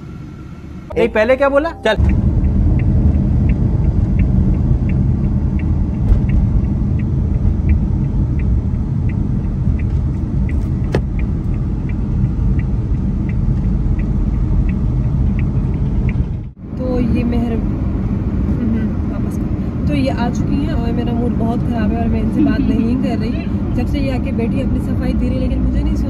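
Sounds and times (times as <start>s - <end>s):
car engine rumble: 0.0s - 26.0s
indicator ticking: 0.9s - 15.6s.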